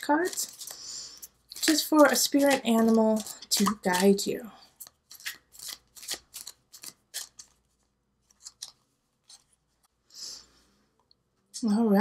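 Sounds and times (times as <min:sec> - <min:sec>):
cards shuffling snaps: 0:00.2 - 0:04.2, 0:04.8 - 0:07.6, 0:08.3 - 0:09.4.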